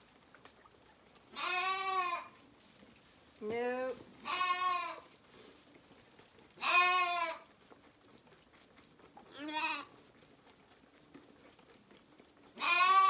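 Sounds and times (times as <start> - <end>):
lambs bleating: 1.3 - 2.4, 4.2 - 5.2, 6.6 - 7.5, 9.3 - 10.0, 12.6 - 13.0.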